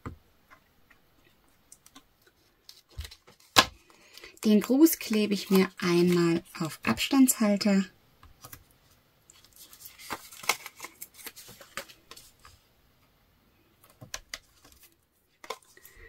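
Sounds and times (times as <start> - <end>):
paper rustling: 9.3 - 12.6.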